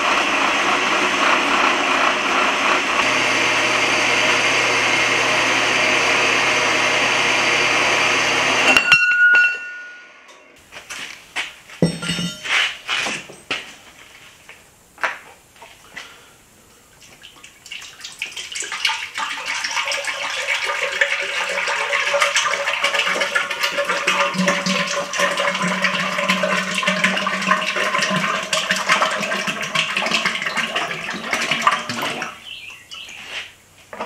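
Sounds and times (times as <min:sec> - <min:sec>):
liquid pouring into metal cylinder: 0:17.6 - 0:32.3.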